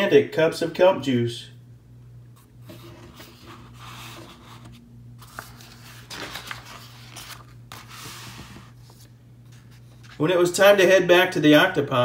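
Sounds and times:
steady low hum: 0.0s - 12.0s
paper pages rustling: 2.4s - 10.2s
hand sliding over glossy page: 2.6s - 10.2s.

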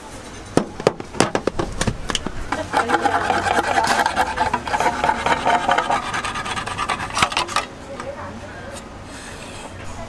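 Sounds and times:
can opener grinding metal: 2.5s - 7.7s.

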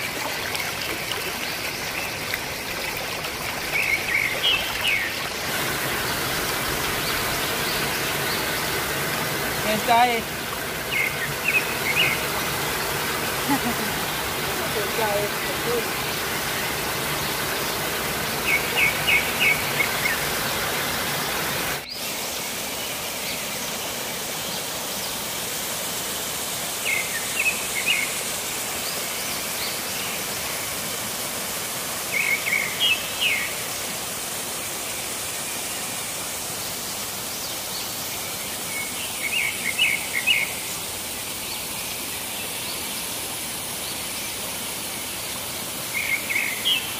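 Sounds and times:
waterfall rushing: 0.0s - 46.9s
bird chirping: 10.8s - 12.4s.

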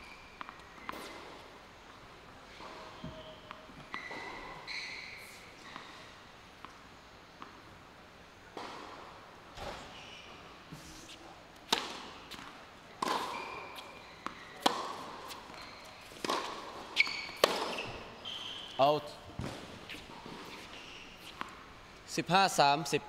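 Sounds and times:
tennis ball bouncing: 11.6s - 17.9s
tennis ball struck with racquets: 11.7s - 17.9s.

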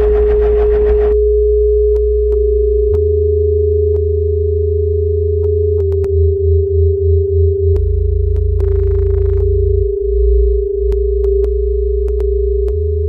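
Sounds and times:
burst of noise: 0.0s - 1.2s
scattered clicks: 0.0s - 1.2s, 7.8s - 9.5s
low bass drones: 0.0s - 13.0s
steady sine tone: 0.0s - 13.0s.

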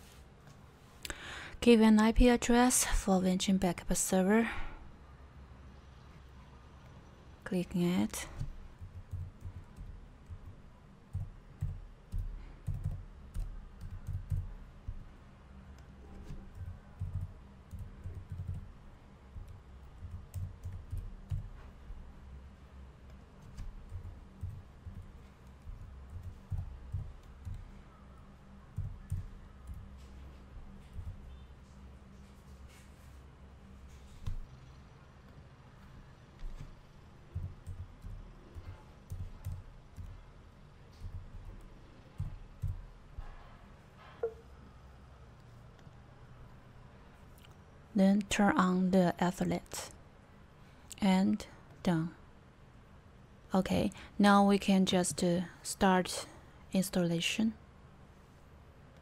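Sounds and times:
keyboard typing: 8.4s - 15.0s, 15.8s - 18.8s, 19.4s - 21.7s, 23.1s - 27.8s, 28.7s - 31.4s, 36.4s - 40.2s, 41.0s - 42.9s.

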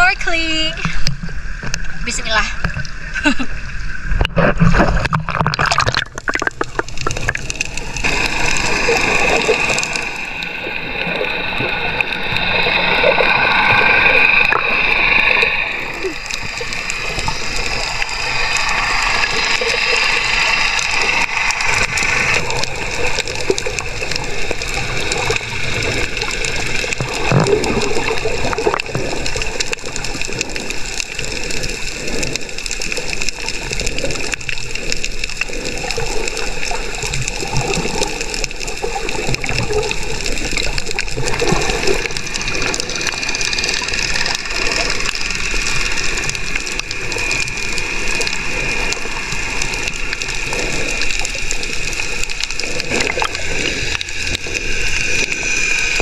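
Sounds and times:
sea water sloshing: 0.0s - 56.0s.

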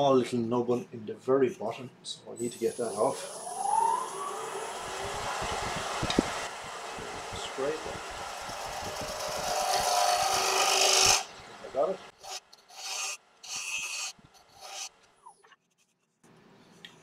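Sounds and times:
scraper cutting wood on lathe: 7.0s - 11.3s, 12.2s - 15.0s.

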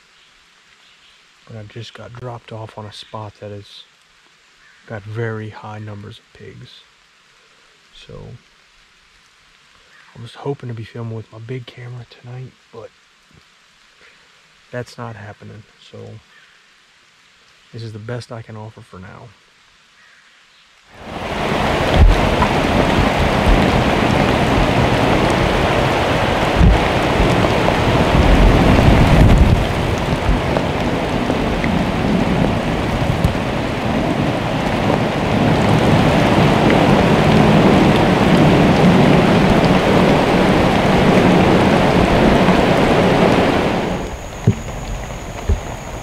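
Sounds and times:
heavy rain pouring: 1.3s - 4.0s, 4.8s - 16.3s, 20.9s - 46.0s
deep rumbles: 21.0s - 46.0s.

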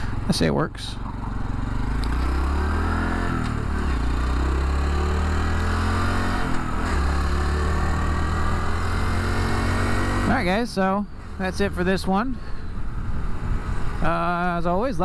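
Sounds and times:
motorcycle engine accelerating: 0.0s - 11.6s.

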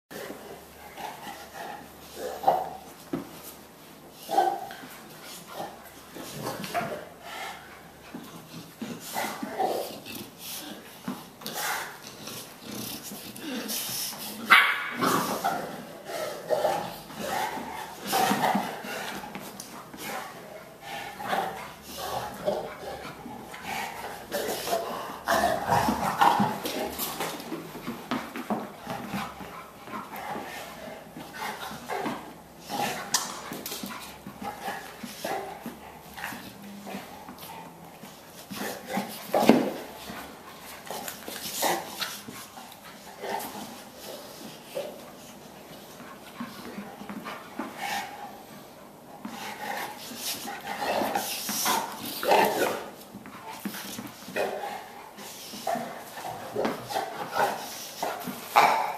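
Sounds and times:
dogs scuffling: 0.2s - 58.9s
dogs growling and grunting: 11.9s - 13.7s, 14.4s - 19.3s, 20.2s - 27.6s.

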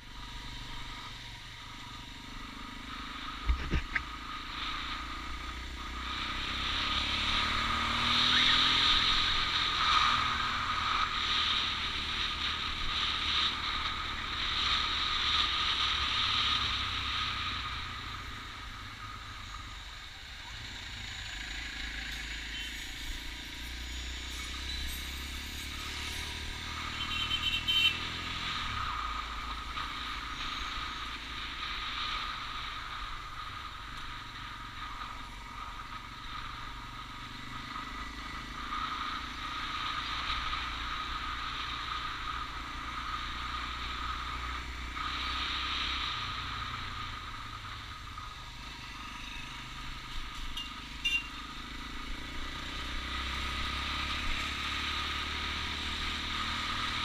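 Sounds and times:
motorcycle engine running: 0.0s - 43.2s
road and wind noise: 0.0s - 57.0s.

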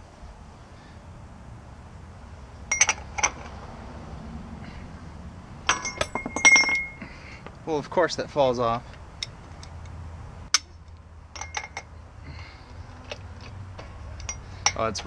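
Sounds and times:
steel parts clinking: 2.7s - 3.5s, 5.6s - 7.1s, 10.5s - 11.9s, 12.8s - 15.0s.

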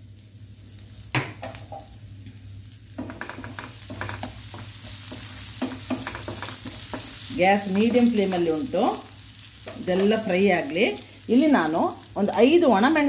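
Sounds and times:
spices sizzling in hot oil: 0.0s - 13.0s
wooden spatula scraping pan: 3.0s - 8.2s.

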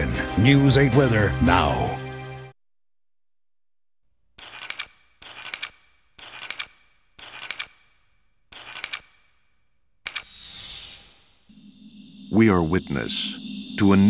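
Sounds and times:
wire cutters snipping: 4.4s - 9.4s.

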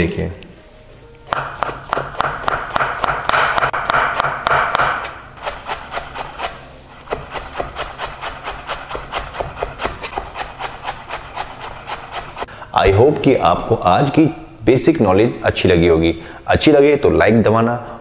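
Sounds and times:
knife chopping on wooden board: 1.3s - 12.5s.

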